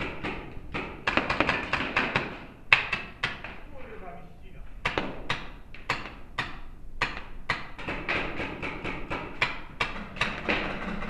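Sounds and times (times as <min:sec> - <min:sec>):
paintball markers firing: 0:00.0 - 0:03.5.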